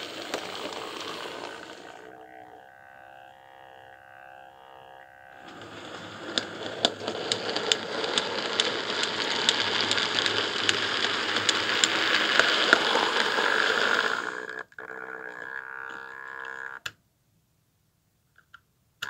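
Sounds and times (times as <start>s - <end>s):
train wheel clicks: 0.0s - 2.0s, 5.4s - 14.6s
model train rolling on track: 0.0s - 3.0s, 5.3s - 14.7s.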